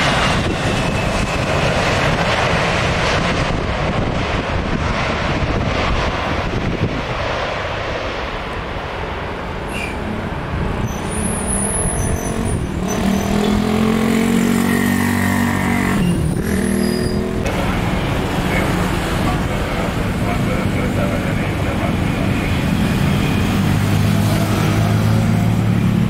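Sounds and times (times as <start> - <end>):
high engine whine: 0.0 - 26.0
jet engines rumbling: 0.0 - 26.0.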